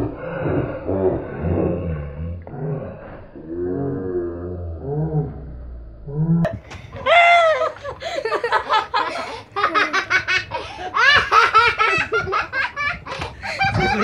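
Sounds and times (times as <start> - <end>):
girls laughing: 6.6 - 14.0.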